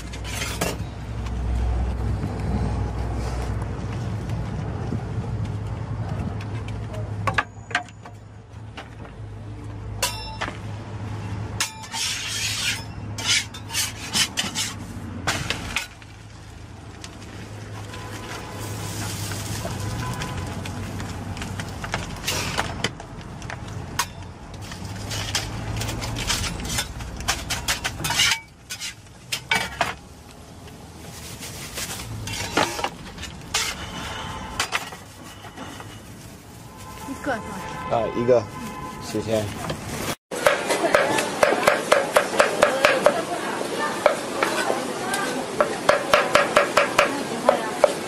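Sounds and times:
metal spatula scraping griddle: 0.0s - 0.8s, 11.6s - 14.9s, 24.9s - 30.0s, 32.2s - 36.2s.

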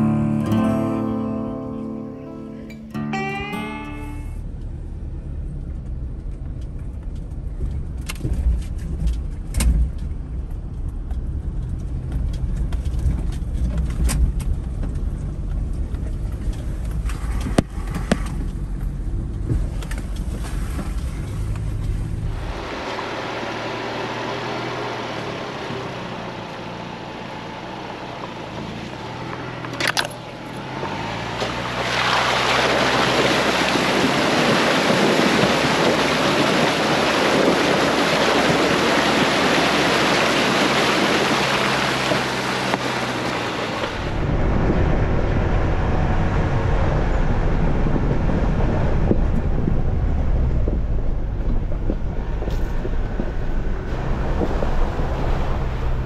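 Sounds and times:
water splashing around tyres: 5.2s - 46.9s, 47.6s - 56.0s
wind on microphone: 32.9s - 56.0s.

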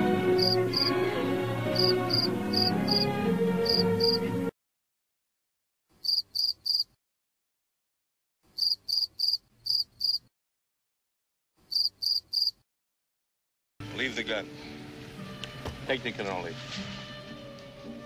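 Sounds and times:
film music: 0.0s - 4.5s, 13.8s - 18.0s
cricket chirping: 0.4s - 0.9s, 1.8s - 3.0s, 3.6s - 4.2s, 6.0s - 7.0s, 8.6s - 10.3s, 11.7s - 12.6s.

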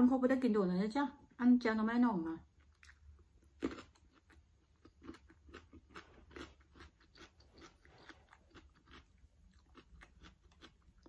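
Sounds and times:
person chewing: 2.6s - 11.0s.

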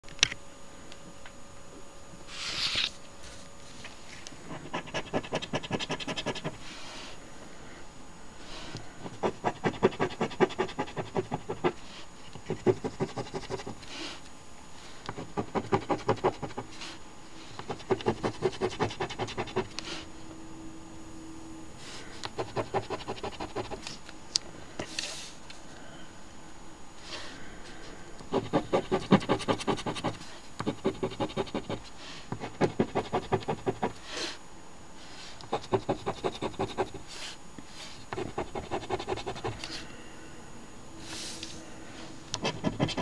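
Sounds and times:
coin scratching lottery ticket: 4.5s - 6.6s, 9.1s - 11.8s, 12.5s - 13.8s, 15.2s - 16.7s, 17.6s - 19.8s, 22.3s - 23.9s, 28.3s - 31.8s, 32.4s - 34.0s, 35.5s - 37.1s, 38.2s - 39.7s, 42.4s - 43.0s.

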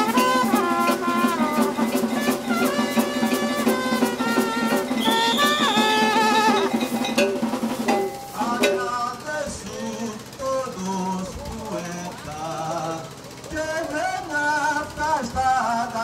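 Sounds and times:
wind instruments melody: 0.0s - 8.5s
drums: 0.0s - 16.0s
cowbell: 2.2s - 8.9s.

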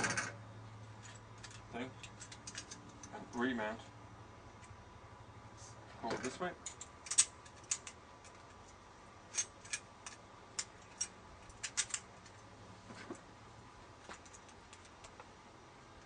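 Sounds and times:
small metal parts clicking: 1.0s - 3.2s, 6.6s - 12.4s.

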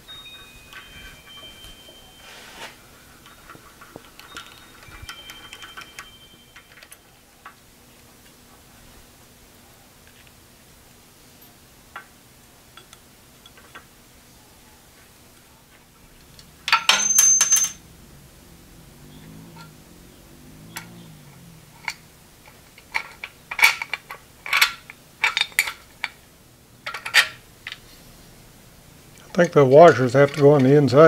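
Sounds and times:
metal hardware clinking: 0.0s - 7.6s, 16.2s - 17.9s, 20.6s - 26.2s, 26.8s - 27.8s, 29.2s - 30.9s.

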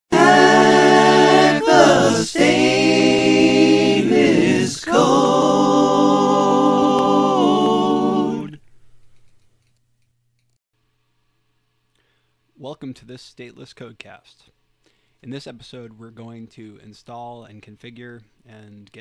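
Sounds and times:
a cappella sung jingle: 0.1s - 8.6s.

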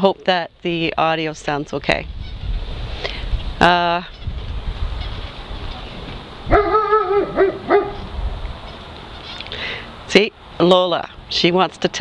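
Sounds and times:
background hiss: 0.4s - 11.9s
wind buffeting microphone: 0.5s - 9.2s
dog barking: 6.5s - 8.1s.

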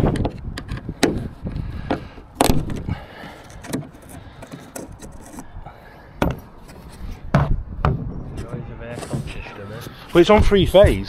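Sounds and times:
wind rumble on microphone: 0.0s - 3.2s, 6.8s - 9.5s.

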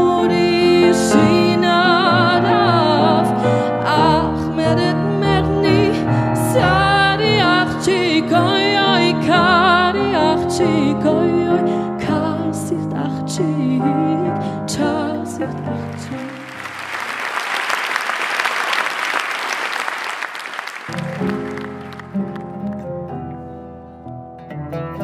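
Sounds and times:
woman singing with vibrato: 0.0s - 16.7s
audience applauding: 15.8s - 22.9s
instrumental accompaniment: 20.7s - 25.0s.

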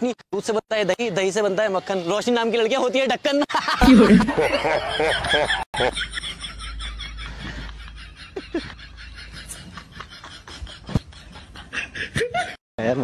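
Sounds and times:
person snickering: 3.8s - 4.8s.

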